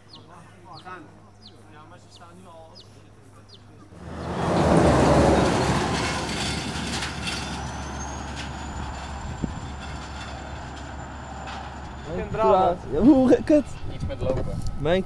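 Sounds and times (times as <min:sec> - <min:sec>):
truck passing close by: 0:03.9 - 0:13.8.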